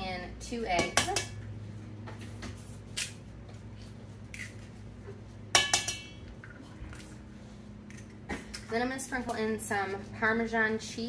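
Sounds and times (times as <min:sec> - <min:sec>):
dishes and utensils clinking: 0:05.6 - 0:06.6.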